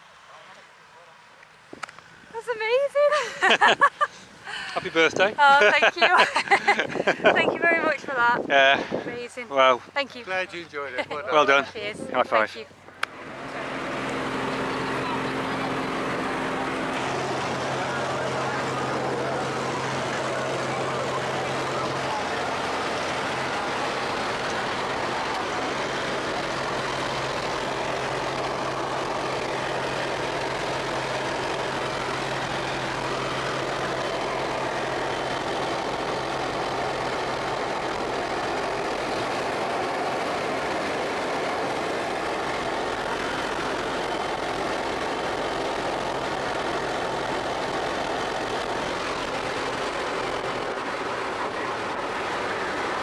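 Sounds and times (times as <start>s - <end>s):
light aircraft engine drone in cabin: 12.8s - 53.0s.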